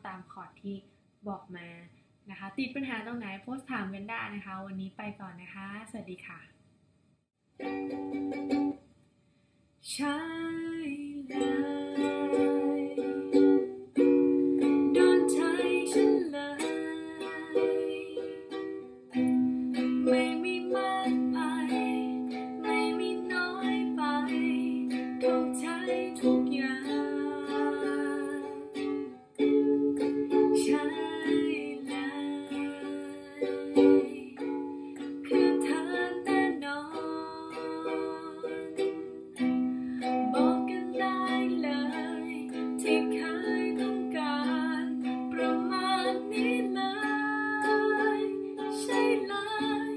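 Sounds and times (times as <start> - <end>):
ukulele strumming: 7.6 - 8.8, 10.1 - 49.9.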